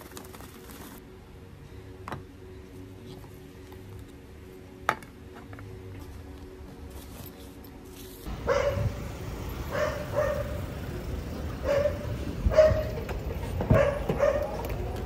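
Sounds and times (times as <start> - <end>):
dog barking: 8.4 - 9.0, 9.7 - 10.6, 11.6 - 13.0, 13.7 - 14.6.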